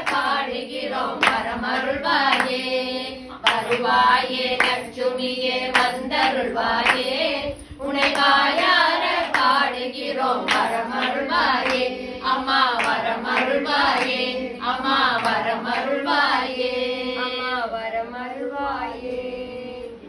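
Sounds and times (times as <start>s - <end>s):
hand claps: 0.0s - 2.8s, 3.4s - 7.3s, 7.9s - 15.5s
group singing in unison: 0.0s - 20.0s.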